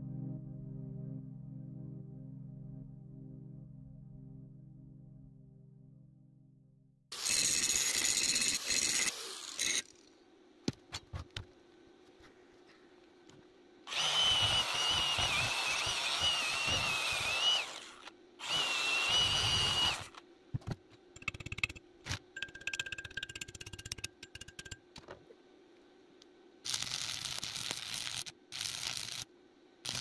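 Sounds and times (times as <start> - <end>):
angle grinder on steel: 7.1 - 9.9, 13.9 - 20.2.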